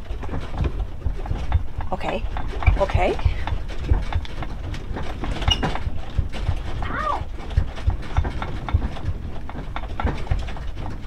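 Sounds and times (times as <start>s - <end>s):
house thuds knocks and clicks: 0.0s - 11.0s.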